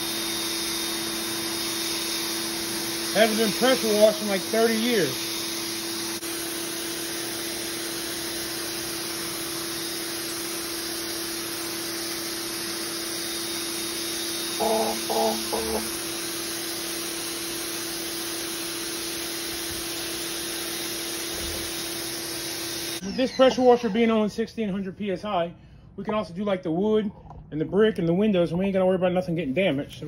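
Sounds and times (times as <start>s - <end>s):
pressure washer motor hum: 0.0s - 24.0s
water spray hissing on concrete: 3.2s - 5.2s
short pitched calls: 14.6s - 15.9s.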